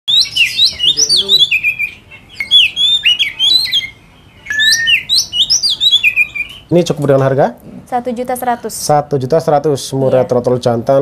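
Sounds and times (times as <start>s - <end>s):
bird singing whistled phrases: 0.1s - 6.6s.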